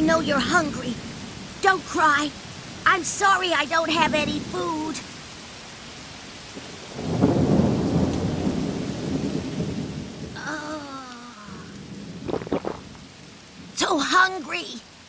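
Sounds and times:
heavy rain: 0.0s - 15.0s
thunder rumble: 6.6s - 13.8s.

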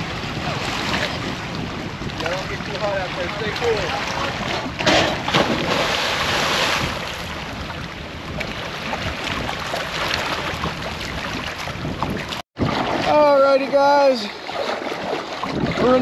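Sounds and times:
wind buffeting microphone: 0.0s - 16.0s
loud splash into water: 3.9s - 7.3s, 12.6s - 13.4s.

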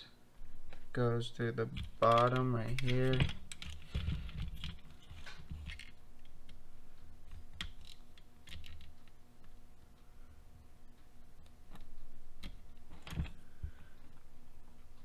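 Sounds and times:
small plastic parts clicking: 1.7s - 6.6s, 7.3s - 9.2s.

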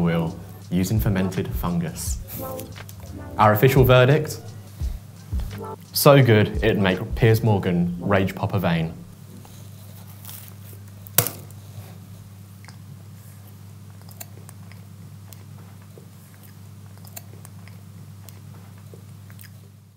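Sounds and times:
low hum: 1.0s - 5.8s
man biting and chewing pastry: 9.7s - 11.6s, 12.5s - 19.9s.

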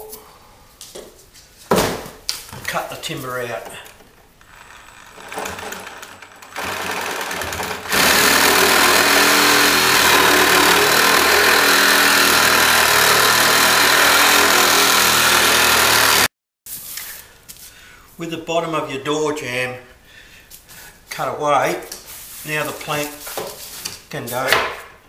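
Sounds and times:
reciprocating saw cutting wood: 4.4s - 16.3s.

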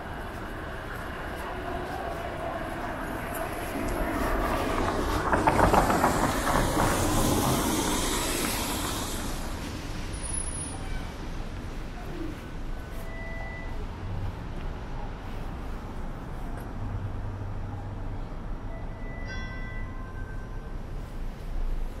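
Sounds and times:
vehicle passing: 0.1s - 10.2s.

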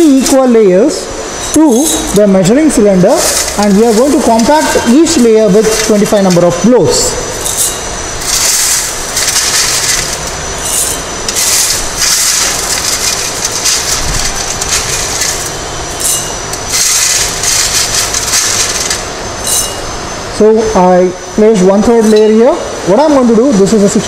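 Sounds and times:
crushed stone clattering in sieve: 7.4s - 19.0s.

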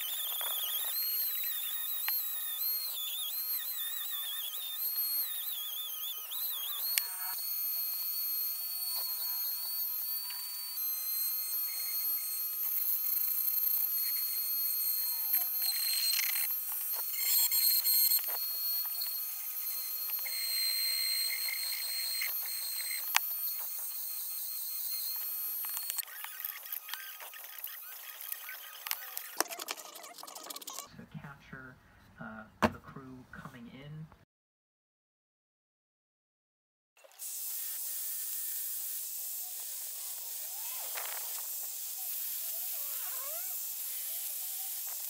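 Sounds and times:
rotary tool high-pitched whine: 0.0s - 30.9s, 37.0s - 45.0s.

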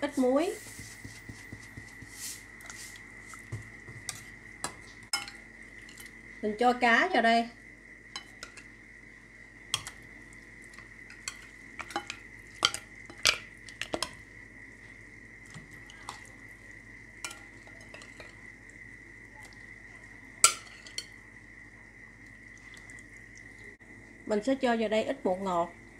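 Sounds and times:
metal utensil clinking on pot: 5.1s - 6.0s, 11.1s - 14.1s, 17.2s - 18.4s, 20.4s - 21.1s.

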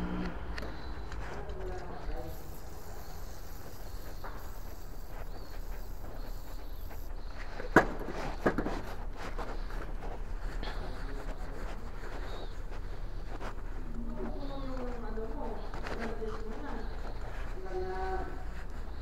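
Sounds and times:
rustling and ticks of handling: 0.6s - 19.0s
aerosol spray hissing: 2.1s - 9.0s.

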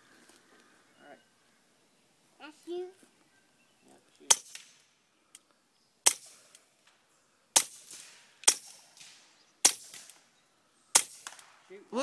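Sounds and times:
suppressed pistol shots: 6.0s - 6.5s, 7.6s - 10.2s, 10.9s - 11.6s.

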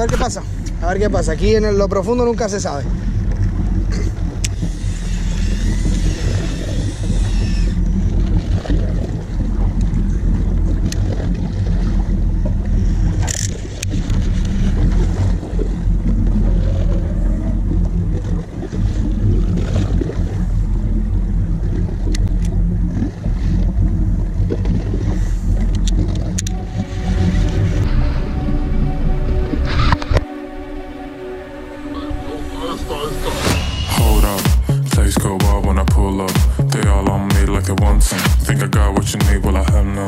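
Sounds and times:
boat engine idling: 0.0s - 40.0s
music: 26.2s - 40.0s.

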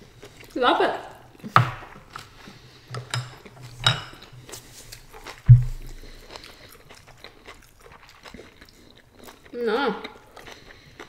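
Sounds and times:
handling noise: 3.0s - 6.3s
loud dull thump: 5.5s - 6.2s.

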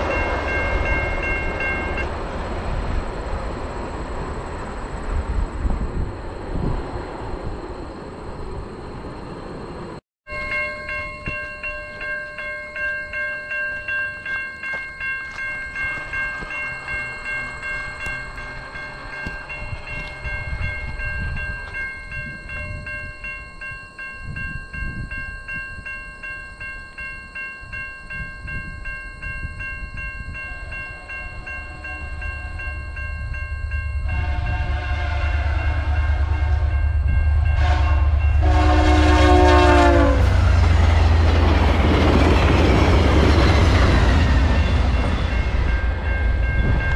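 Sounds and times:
train rumbling: 0.0s - 46.9s
level crossing bell ringing: 10.3s - 34.4s
train horn: 30.3s - 32.8s, 34.0s - 40.8s.

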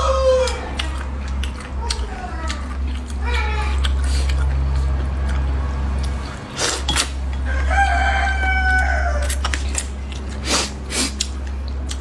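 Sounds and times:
rooster crowing: 0.0s - 0.8s, 7.4s - 9.6s
low hum: 0.0s - 12.0s
slurping and chewing noodles: 0.0s - 12.0s.

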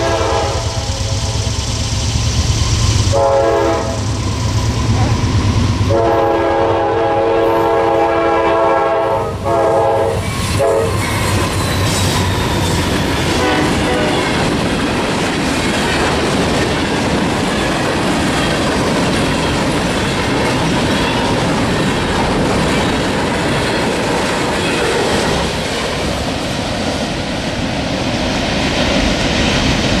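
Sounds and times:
locomotive horn blast: 0.0s - 1.5s, 3.1s - 4.1s, 5.9s - 11.0s, 13.3s - 14.4s
freight train rumble and clatter: 0.0s - 30.0s.

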